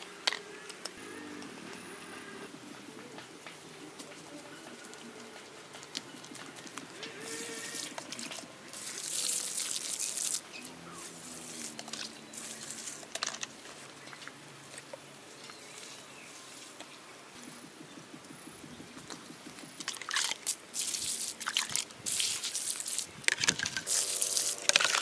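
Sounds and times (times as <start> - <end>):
water pouring in gushes: 7.8 - 10.4, 19.9 - 25.0.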